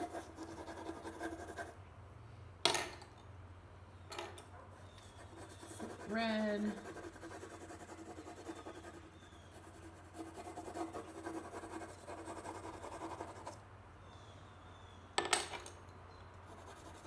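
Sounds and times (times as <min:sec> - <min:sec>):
pencil scratching on paper: 0:00.0 - 0:01.7, 0:05.0 - 0:13.6, 0:16.5 - 0:17.0.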